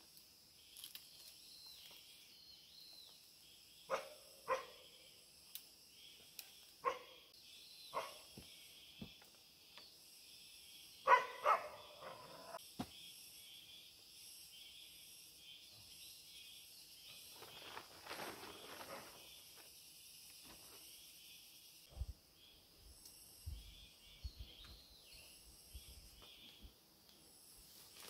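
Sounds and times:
high-pitched insect chorus: 0.0 - 28.0
plastic tarp rustling: 17.3 - 19.5.

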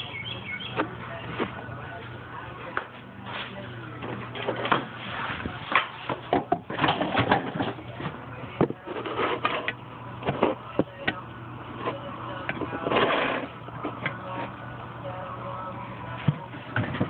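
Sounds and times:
scraping rustle: 12.6 - 13.5.

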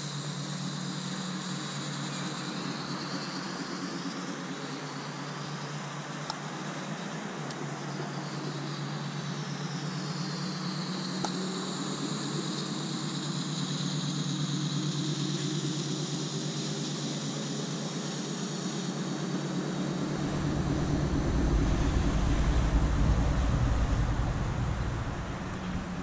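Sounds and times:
steam locomotive hissing and humming: 15.0 - 26.0.

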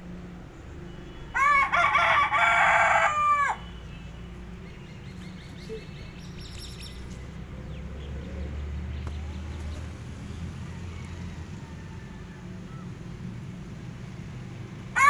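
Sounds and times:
rooster crowing: 1.3 - 3.7, 10.6 - 13.0.

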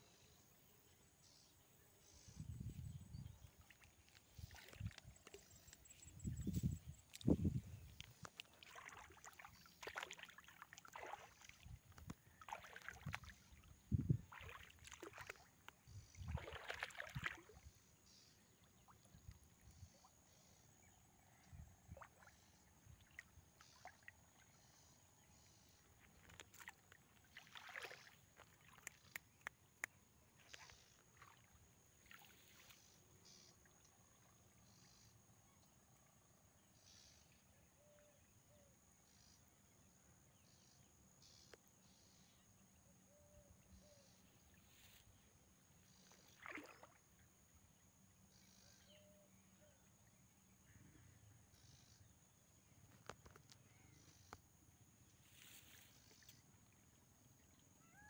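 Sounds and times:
stick swishing through water: 3.4 - 17.7, 26.0 - 29.2, 45.9 - 47.0
small ticks: 28.4 - 31.0, 52.9 - 54.4.

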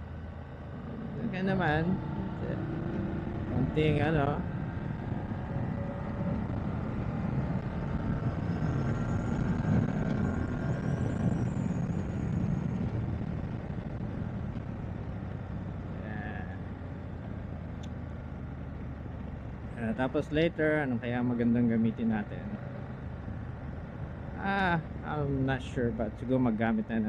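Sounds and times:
wind noise: 0.6 - 17.7.

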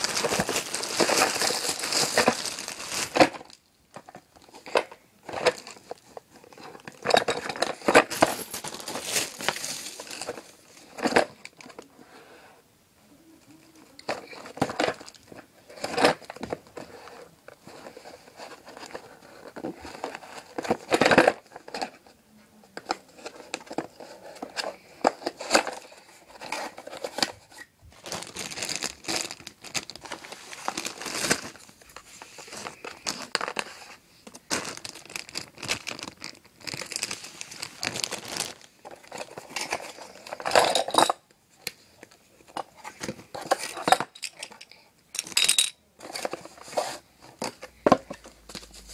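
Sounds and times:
plastic packaging crinkling: 0.0 - 11.8, 22.8 - 41.1.

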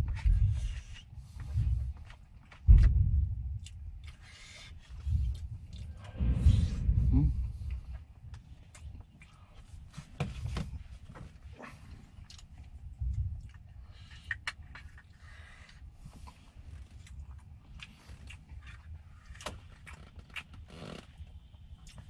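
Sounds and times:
chewing and mouth noises: 3.6 - 6.2, 11.4 - 22.0.

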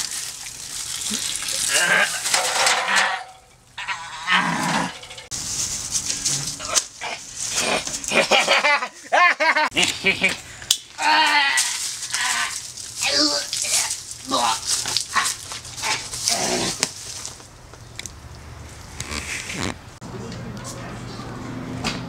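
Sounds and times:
rustling and scraping: 0.0 - 8.6, 11.6 - 18.0, 18.6 - 19.9
vocal cries and squeals: 1.1 - 5.2.

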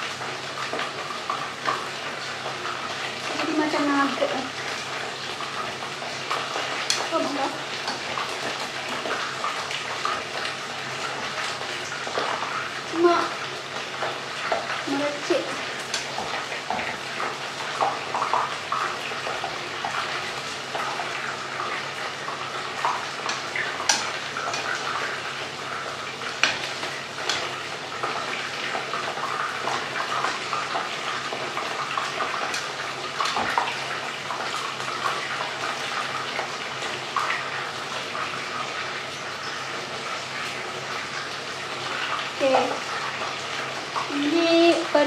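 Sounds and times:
oil sizzling: 0.0 - 45.0
metal tongs clicking on pot: 6.9 - 7.1.

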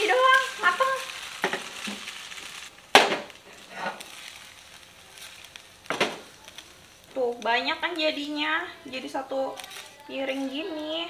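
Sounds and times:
spatula scraping and knocking pan: 0.0 - 6.3
noodles sizzling in frying pan: 0.0 - 11.0.

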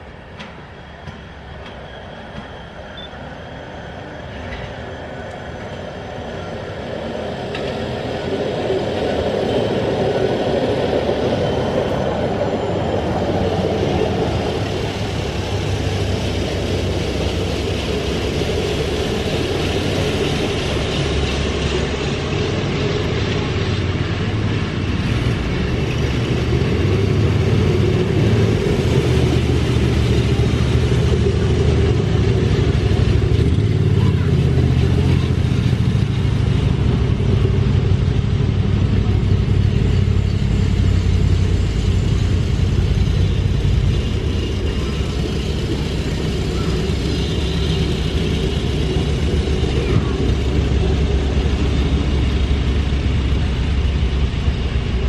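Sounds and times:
small track car engines droning: 0.0 - 55.0.

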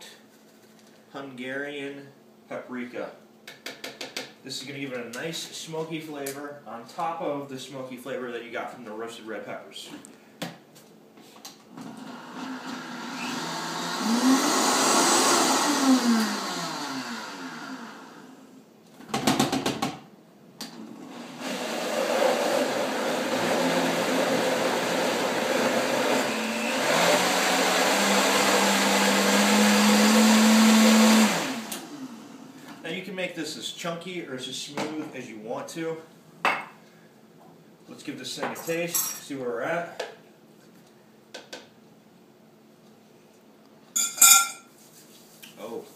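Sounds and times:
blender motor running: 11.8 - 18.4, 21.0 - 32.5.

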